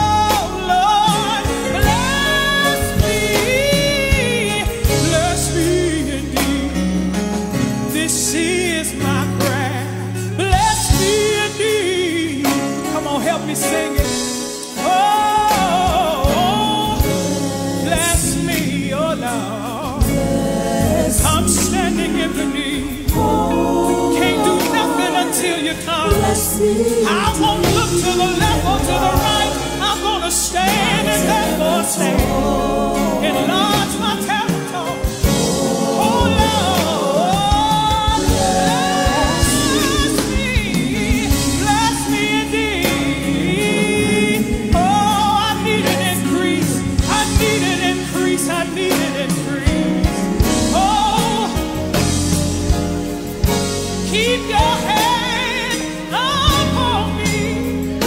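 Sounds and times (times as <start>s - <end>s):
instrumental accompaniment: 0.0s - 58.0s
voices singing along: 14.9s - 48.1s.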